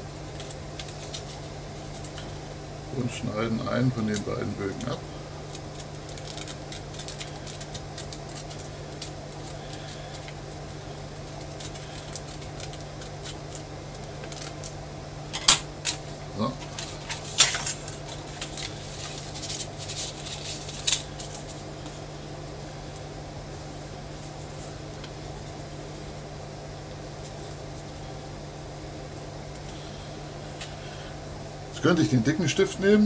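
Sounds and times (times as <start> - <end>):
steady low hum: 0.0 - 33.0
paper rustling: 5.5 - 10.3, 16.6 - 22.0
scissors snipping paper: 5.5 - 10.4.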